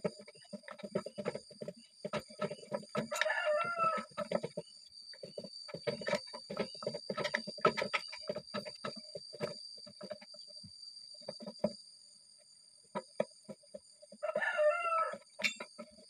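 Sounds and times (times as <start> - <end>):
rapid clicking and tapping: 0.0 - 11.8
rooster crowing: 3.0 - 4.2, 14.2 - 15.3.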